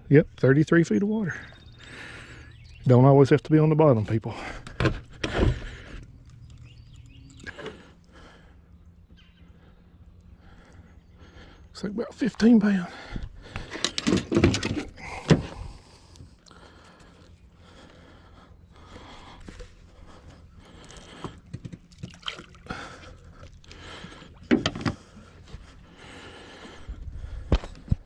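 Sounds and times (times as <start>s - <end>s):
water splashing against boat: 21.7s - 25.2s.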